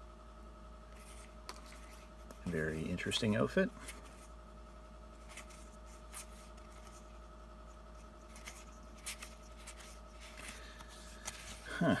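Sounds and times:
faint electrical hum: 0.0 - 12.0
trading cards swishing: 8.0 - 11.7.

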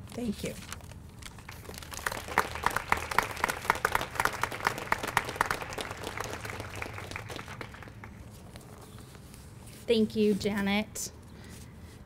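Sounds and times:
group applauding: 1.3 - 8.3.

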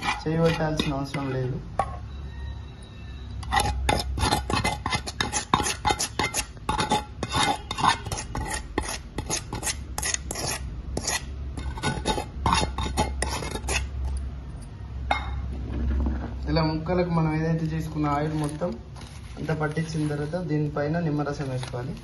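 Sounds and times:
spoon scraping steel bowl: 0.0 - 2.5, 3.3 - 14.2.

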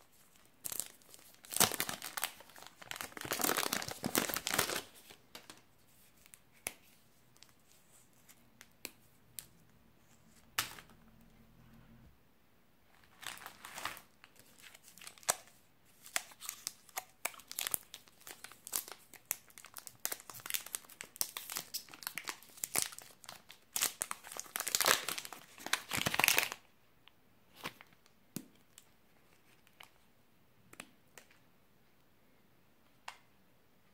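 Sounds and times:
plastic wrapper crinkling and tearing: 0.1 - 5.6, 12.9 - 26.7.

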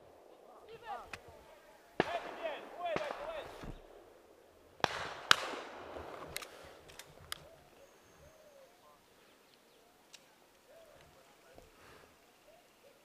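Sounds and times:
shotgun shots: 2.0 - 4.2, 4.8 - 6.6
gun action metallic clicks: 6.3 - 7.4
bird cooing: 7.4 - 10.0.

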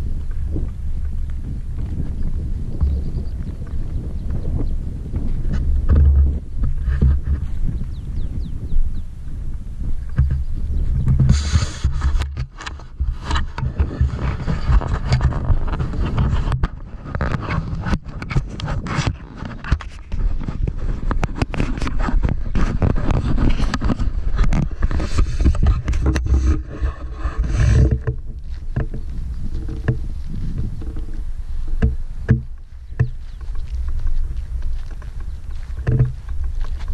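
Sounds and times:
wind buffeting microphone: 0.0 - 36.9
camera handling scraping and knocking: 5.2 - 7.6, 10.1 - 31.2, 31.8 - 36.9.

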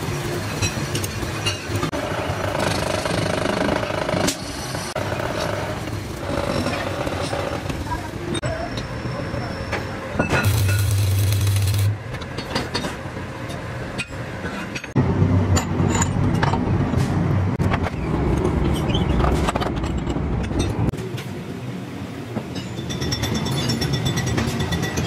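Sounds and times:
machinery rumbling: 10.4 - 12.4.

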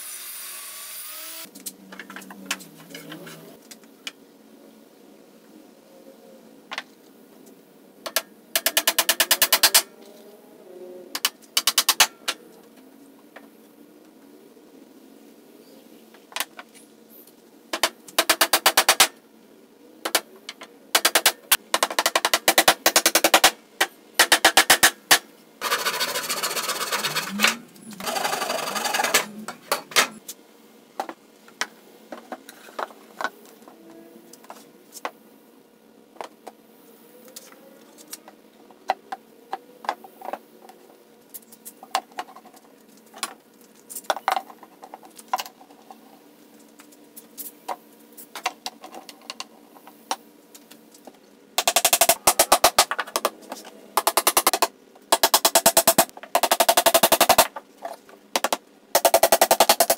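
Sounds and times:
drill rapid clicking: 25.6 - 29.3.

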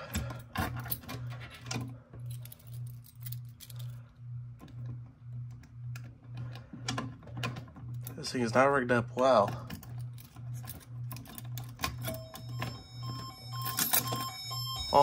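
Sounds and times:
keys jangling on a ring: 2.2 - 4.0.

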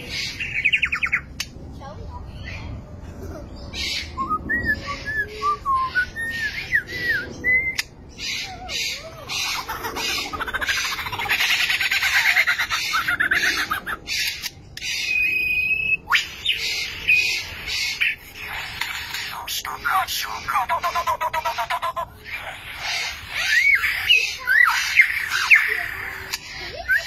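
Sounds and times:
rattling and clicking bird calls: 9.3 - 15.2, 17.7 - 26.9.

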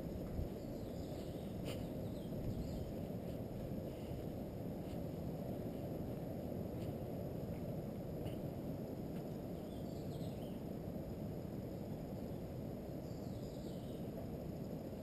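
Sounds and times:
low outdoor rumble: 0.0 - 15.0
small birds chirping: 0.4 - 4.3, 9.6 - 10.7, 13.0 - 14.1.

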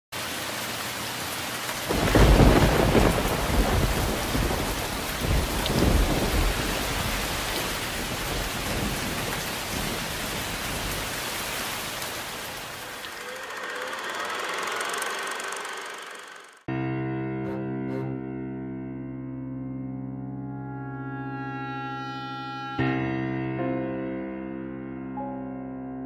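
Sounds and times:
steady rain: 0.2 - 15.7
thunder rumbling: 1.9 - 13.2.

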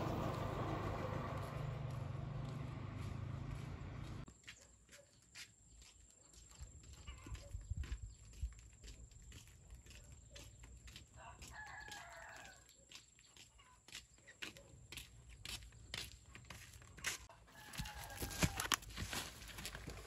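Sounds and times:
flip-flop footsteps on dirt: 1.4 - 20.0
rooster crowing: 11.2 - 12.7, 17.3 - 18.8.

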